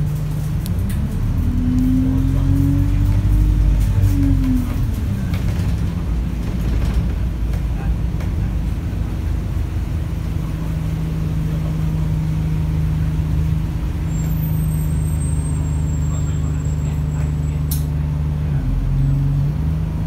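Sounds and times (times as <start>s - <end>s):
bus diesel engine humming: 0.0s - 20.0s
faint high squeal: 14.0s - 17.7s
sharp click: 17.7s - 17.9s.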